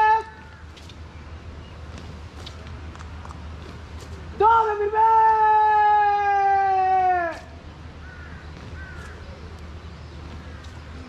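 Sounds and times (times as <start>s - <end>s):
drill commander shouting: 0.0s - 0.4s, 4.4s - 7.5s.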